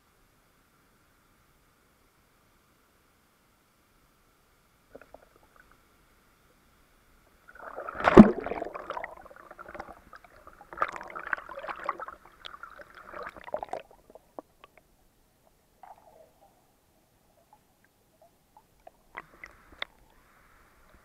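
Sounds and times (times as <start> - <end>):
muffled water sloshing and splashing: 7.5 - 14.6.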